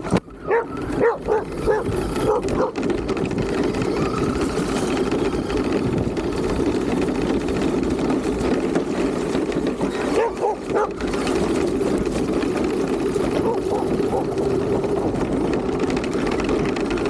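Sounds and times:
rc car motor rumbling: 0:00.0 - 0:17.0
dogs barking: 0:00.4 - 0:03.0, 0:09.9 - 0:11.4, 0:13.3 - 0:14.5.

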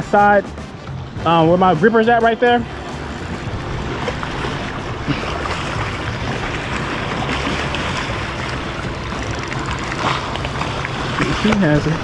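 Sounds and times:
waves splashing against rocks: 0:01.8 - 0:12.0.

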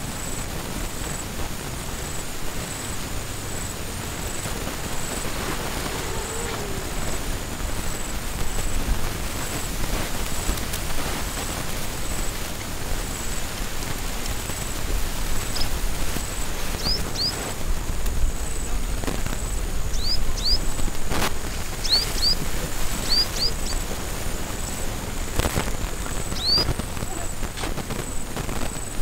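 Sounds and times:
wind noise: 0:00.0 - 0:29.0
bird chirping: 0:04.2 - 0:08.8, 0:15.3 - 0:17.5, 0:19.8 - 0:24.0, 0:26.2 - 0:27.4
faint high pulsing tone: 0:04.4 - 0:08.8.

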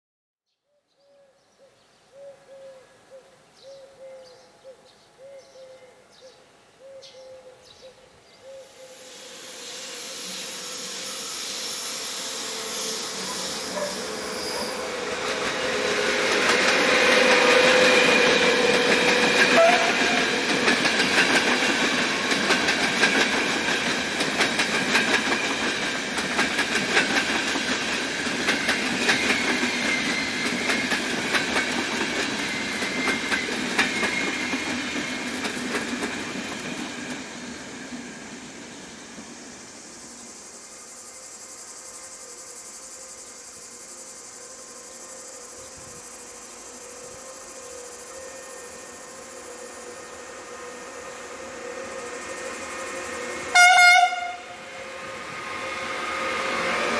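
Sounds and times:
electric locomotive passing: 0:08.4 - 0:56.9
train wheels clacking over rail joints: 0:13.1 - 0:37.3.

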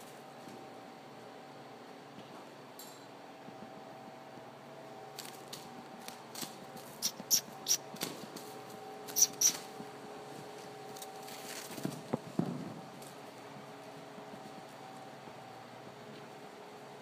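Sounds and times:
faint steady hum: 0:00.0 - 0:17.0
tongue clicks: 0:07.0 - 0:07.8, 0:09.1 - 0:09.6.

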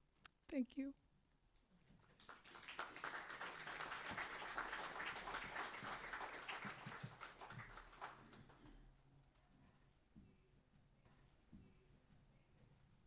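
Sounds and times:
audience applauding: 0:02.1 - 0:08.8.

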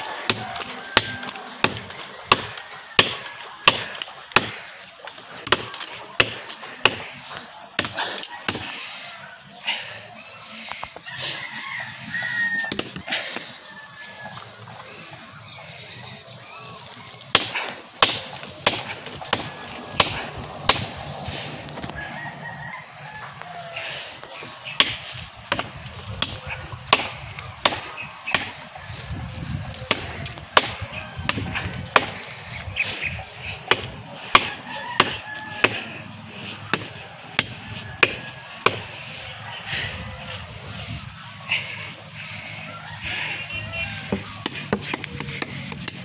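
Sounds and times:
blade chopping into tree trunk: 0:17.3 - 0:21.0.

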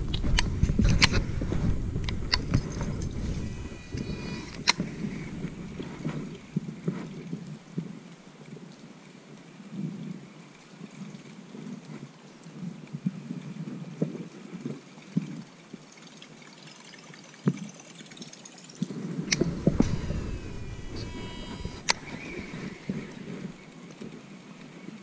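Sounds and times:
sharp clicks: 0:00.0 - 0:06.6, 0:19.3 - 0:23.7
rustling through grass: 0:00.0 - 0:07.2.

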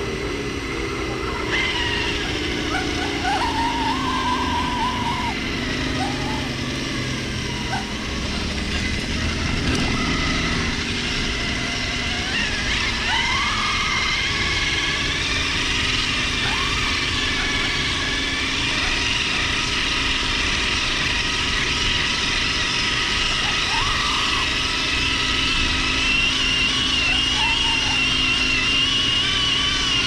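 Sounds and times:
electric motor and gearbox whining: 0:00.0 - 0:30.0.

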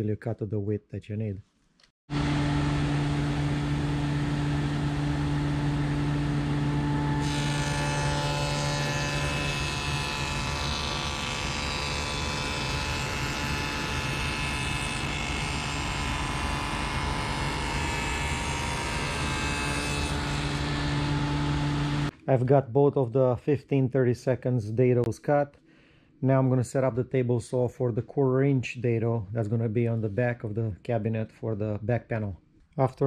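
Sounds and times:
table saw humming: 0:02.1 - 0:22.1
saw cutting plywood: 0:06.8 - 0:22.1.

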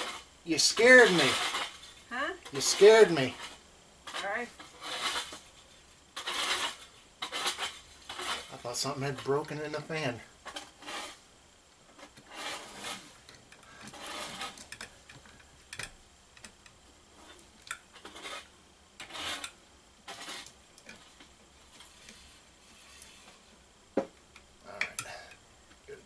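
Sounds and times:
scraping and rubbing on metal: 0:00.0 - 0:11.2, 0:11.9 - 0:15.0, 0:17.1 - 0:23.6.

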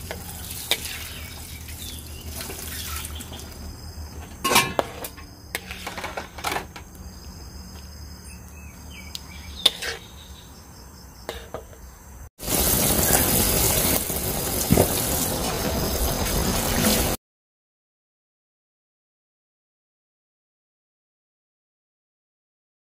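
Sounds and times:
sauce boiling and hissing: 0:00.0 - 0:04.3, 0:12.4 - 0:17.2
metal ladle clinking on wok: 0:04.4 - 0:06.2.

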